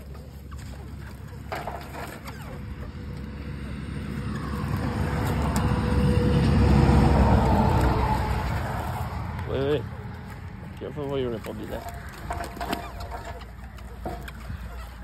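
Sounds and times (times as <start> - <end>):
vehicle passing close by: 2.5 - 12.1.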